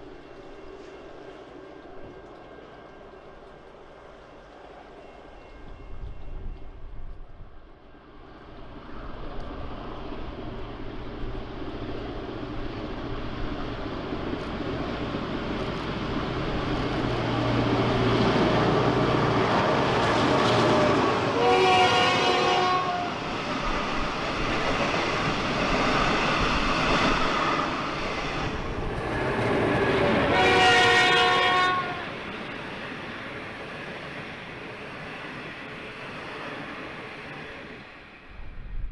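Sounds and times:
diesel locomotive engines: 0.0 - 38.9
wheels rumbling on rails: 0.0 - 38.9
multi-note train horn: 19.2 - 23.2, 30.2 - 32.2.

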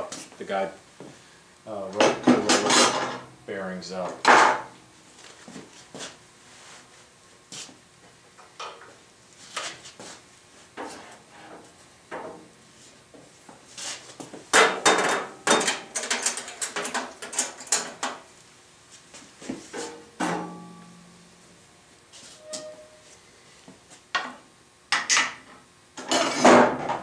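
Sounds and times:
metal parts clattering: 15.0 - 18.0.

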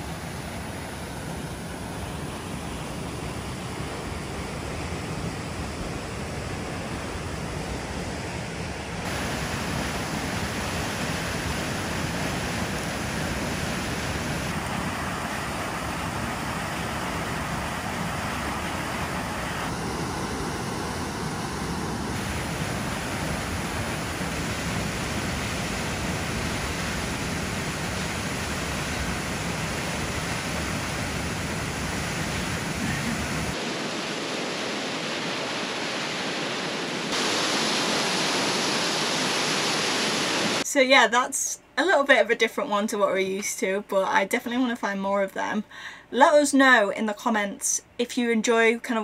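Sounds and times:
waterfall rushing: 9.0 - 40.7.

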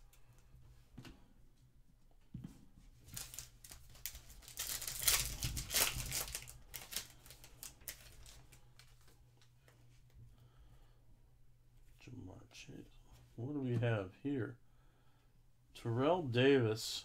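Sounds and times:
foil wrapper tearing and crinkling: 3.1 - 8.5.

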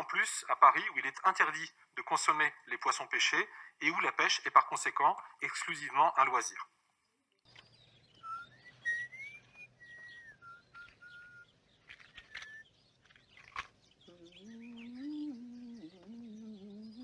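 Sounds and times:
small handling clicks: 11.8 - 13.8
person humming a low tune: 14.1 - 17.0.

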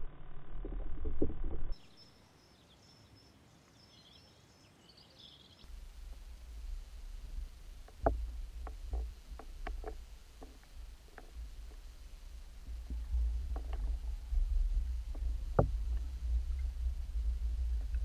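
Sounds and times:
underwater rumble: 0.0 - 1.8, 5.7 - 18.0
faint high bird chirps: 1.8 - 5.7
sharp clicks and knocks: 7.8 - 11.9.

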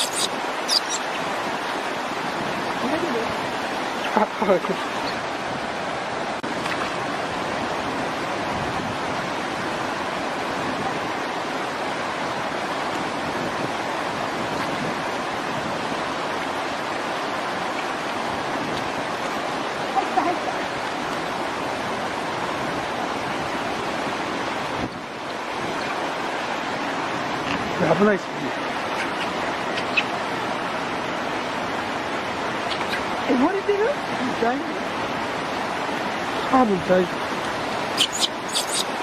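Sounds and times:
high squeak: 0.0 - 1.0, 38.0 - 38.9
running water rushing: 0.0 - 39.0.

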